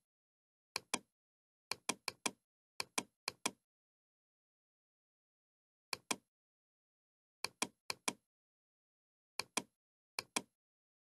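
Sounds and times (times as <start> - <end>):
computer mouse clicking: 0.8 - 1.1, 1.7 - 3.6, 5.9 - 6.2, 7.4 - 8.2, 9.4 - 10.5.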